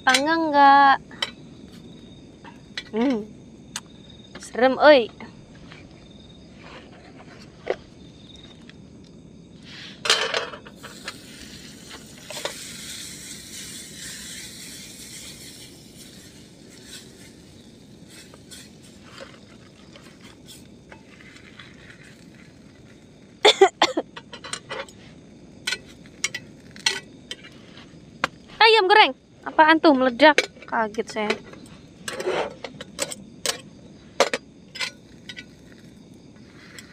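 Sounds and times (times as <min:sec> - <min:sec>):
bread sizzling in pan: 0:10.7 - 0:23.8, 0:24.9 - 0:28.2, 0:34.7 - 0:36.9.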